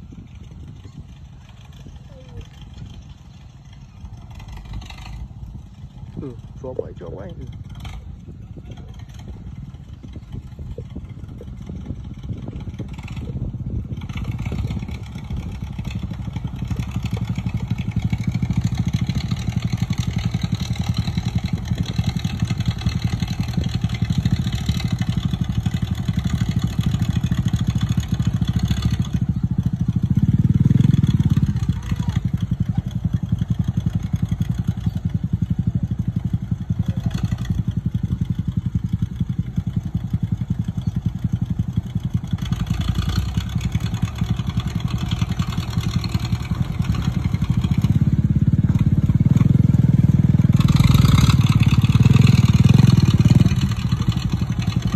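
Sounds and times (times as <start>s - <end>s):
small motorbike engine: 0.0s - 54.9s
tractor engine running: 0.0s - 54.9s.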